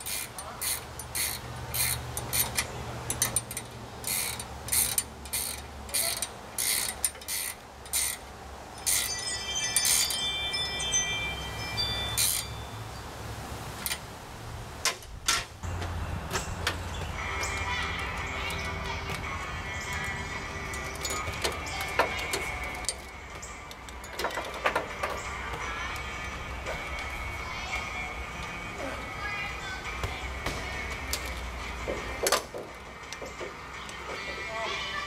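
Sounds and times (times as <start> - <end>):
metallic clicks and clinks: 0.0 - 8.2, 8.8 - 12.6, 15.7 - 27.1
metallic ringing: 0.0 - 13.0.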